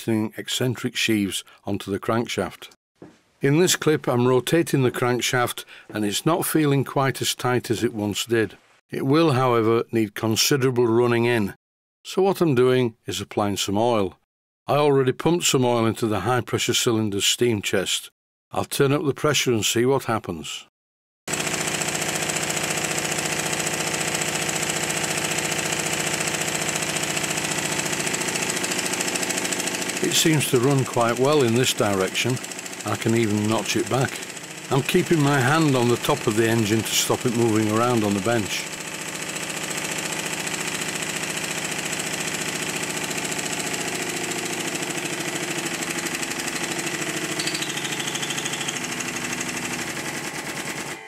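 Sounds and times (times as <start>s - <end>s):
model steam engine exhaust beats: 21.4s - 51.0s.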